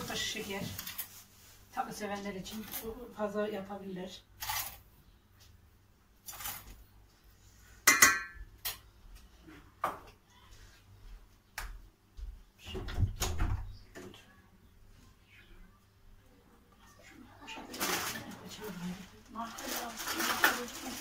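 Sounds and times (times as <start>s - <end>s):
dishes and utensils clinking: 7.8s - 8.5s.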